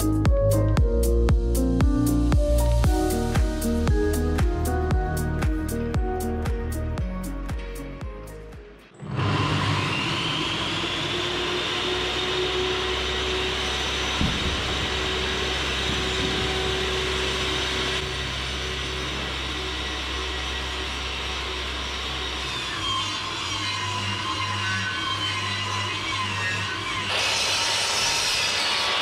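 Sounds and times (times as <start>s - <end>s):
table saw running: 9.0s - 29.0s.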